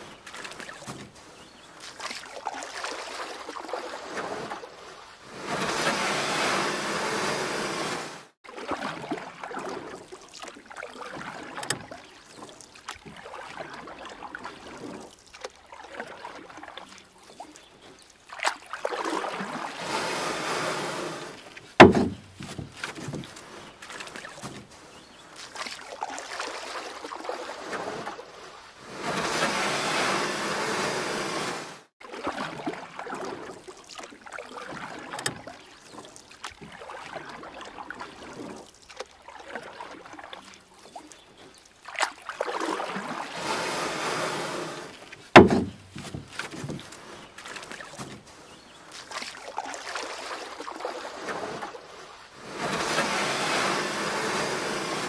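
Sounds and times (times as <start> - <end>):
paddle splashing water: 0.0 - 55.0
sharp knocks: 21.8 - 23.3, 45.4 - 46.8.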